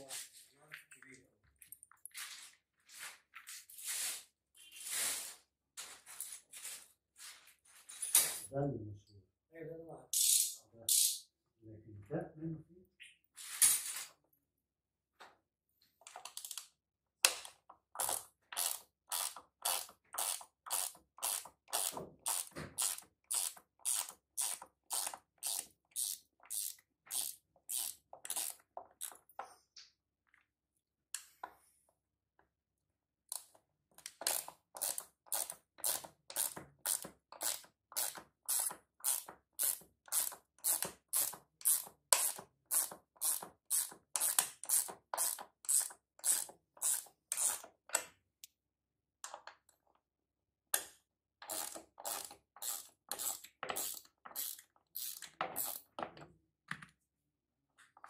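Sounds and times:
ratcheting wrench clicking: 10.2s - 11.2s, 18.0s - 29.2s, 33.3s - 47.7s, 51.4s - 55.9s.

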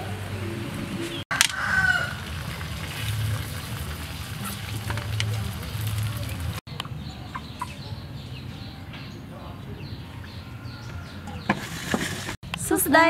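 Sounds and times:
broth simmering and bubbling: 0.0s - 6.8s.

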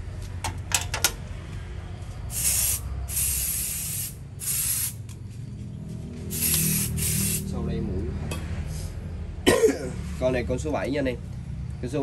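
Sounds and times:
aerosol spray bursts: 2.3s - 5.0s, 6.3s - 7.5s.

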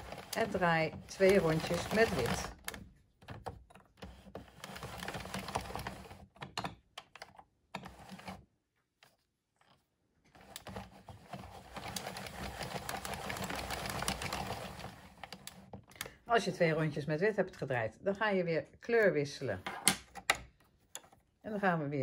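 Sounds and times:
knitting machine clicking: 0.0s - 8.4s, 10.4s - 16.1s.

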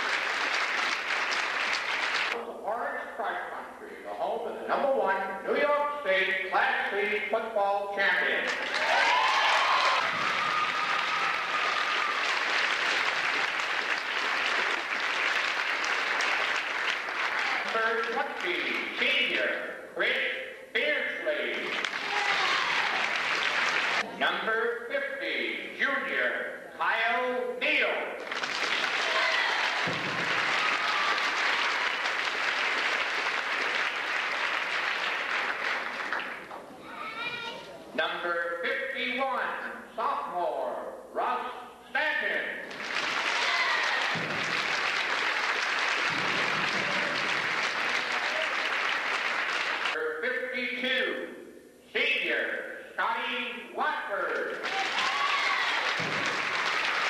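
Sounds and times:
crowd applauding: 0.0s - 2.4s, 8.4s - 18.9s, 21.6s - 24.0s, 28.2s - 36.6s, 42.7s - 50.0s, 54.5s - 57.0s.

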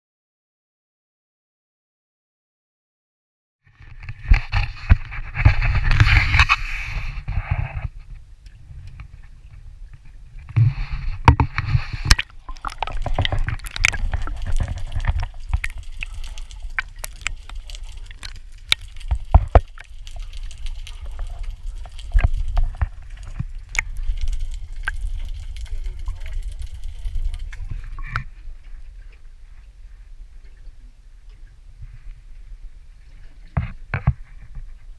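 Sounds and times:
water sloshing and gurgling: 3.7s - 34.9s.

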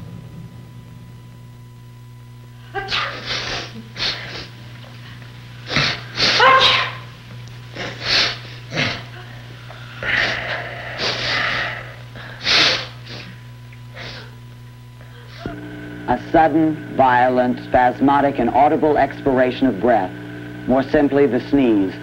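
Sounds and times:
man sneezing: 2.8s - 4.6s, 5.7s - 7.1s, 7.8s - 9.1s, 12.4s - 13.4s
catching breaths: 7.8s - 14.4s.

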